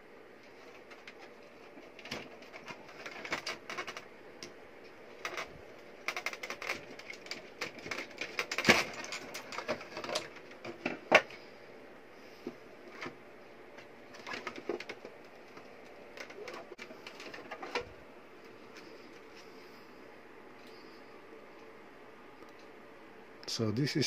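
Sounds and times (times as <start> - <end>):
clicks and rattles of connectors: 0.4 - 11.5, 12.4 - 19.4.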